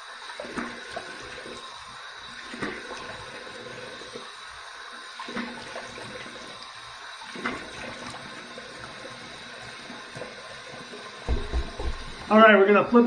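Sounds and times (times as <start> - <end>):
sink tap running: 0.0 - 13.0
water splashing: 11.3 - 12.3.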